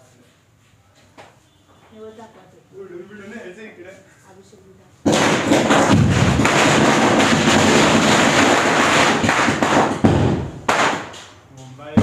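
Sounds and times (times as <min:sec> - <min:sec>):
firecrackers crackling: 0:05.0 - 0:11.5.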